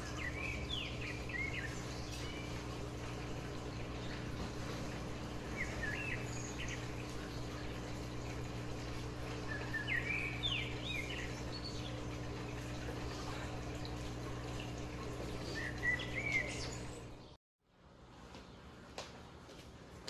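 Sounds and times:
birds chirping: 0:00.0 - 0:17.4
steady low hum: 0:00.0 - 0:20.0.

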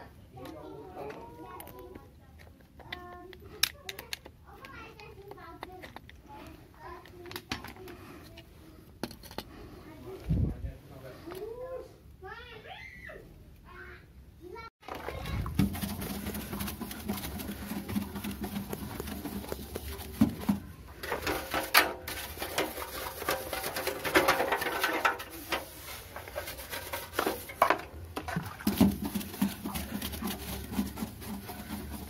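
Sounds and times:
stiff brush scrubbing wet metal: 0:14.8 - 0:32.0.

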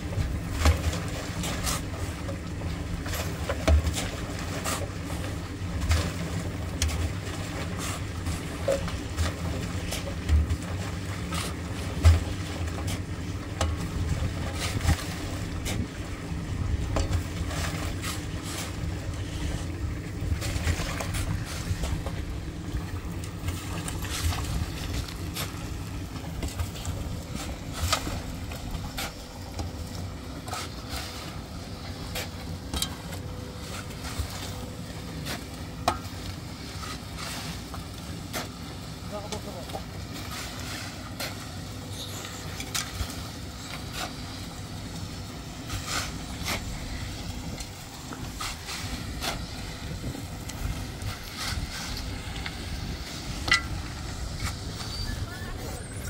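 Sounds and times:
concrete mixer motor drone: 0:00.0 - 0:56.0
shovels scraping gravel: 0:40.2 - 0:44.4, 0:45.6 - 0:47.0, 0:54.3 - 0:56.0.

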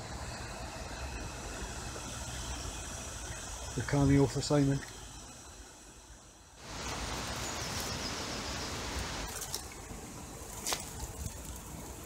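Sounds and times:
walking through dry grass: 0:09.0 - 0:12.0.

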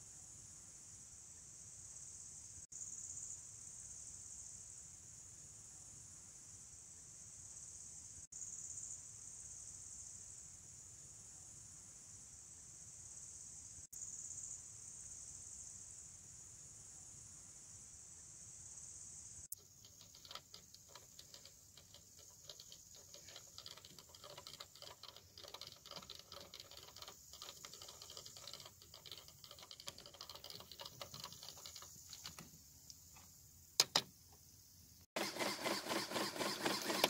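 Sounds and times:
sharp plastic clacks: 0:19.5 - 0:34.1
plastic winch clicking: 0:19.6 - 0:32.5, 0:35.2 - 0:37.0
small pneumatic engine clattering: 0:19.6 - 0:34.1, 0:35.2 - 0:37.0.

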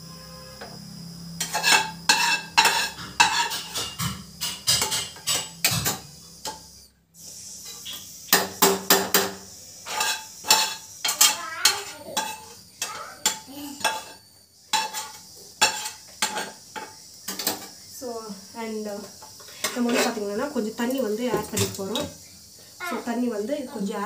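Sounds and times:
spoon scraping a frying pan: 0:01.4 - 0:06.7, 0:07.4 - 0:17.8, 0:19.0 - 0:20.3.

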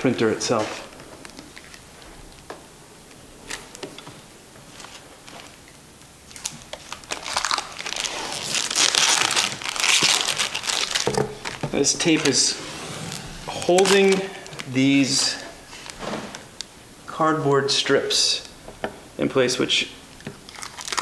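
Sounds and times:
plastic wrap crinkling: 0:03.4 - 0:16.6, 0:20.4 - 0:21.0.

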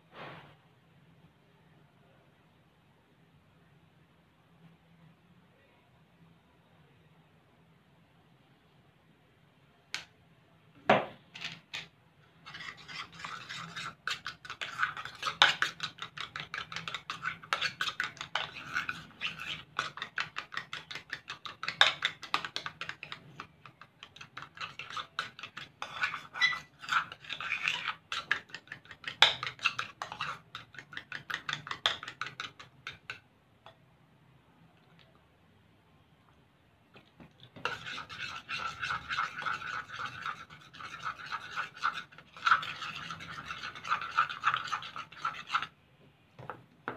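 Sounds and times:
spoon scraping ceramic bowl: 0:11.4 - 0:33.2, 0:37.5 - 0:45.7.

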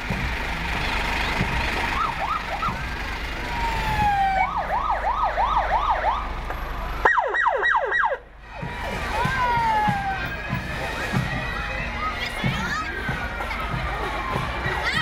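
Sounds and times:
electronic sirens yelping: 0:01.9 - 0:06.4, 0:07.0 - 0:10.4
siren sweeps dropping steeply: 0:03.4 - 0:06.4.

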